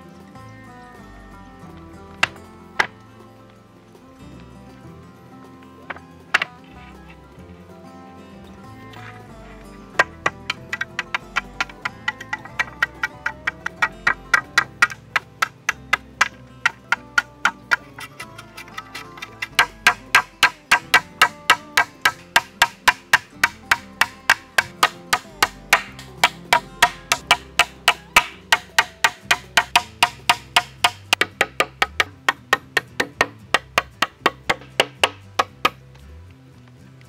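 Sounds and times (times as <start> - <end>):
background music: 0.0 - 37.0
hammer driving nails into wood: 10.0 - 35.8.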